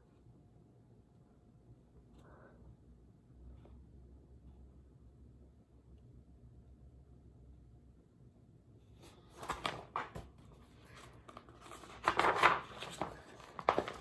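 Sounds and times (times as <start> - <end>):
book pages turning: 9.0 - 14.0.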